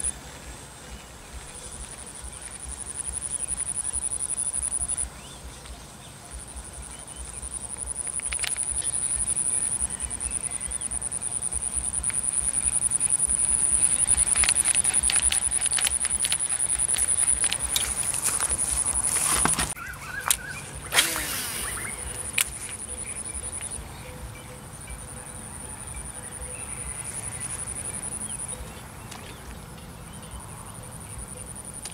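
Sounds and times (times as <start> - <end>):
insect buzzing call: 6.4 - 23.9.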